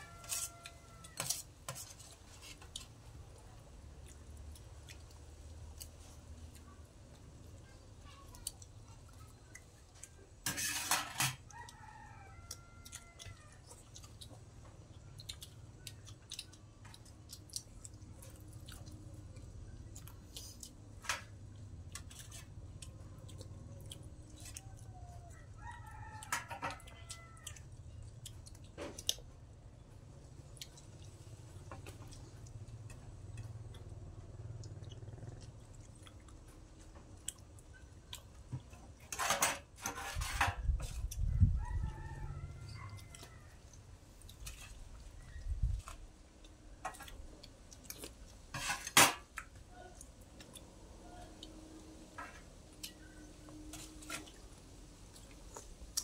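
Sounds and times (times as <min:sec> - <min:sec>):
rooster crowing: 0:00.0 - 0:01.4, 0:11.5 - 0:13.6, 0:24.5 - 0:27.6, 0:41.3 - 0:43.8.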